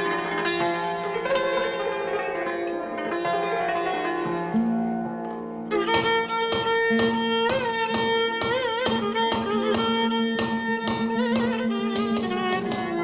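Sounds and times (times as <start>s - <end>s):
bowed string music: 1.1s - 13.0s
hammer tapping chisel on metal: 5.9s - 13.0s.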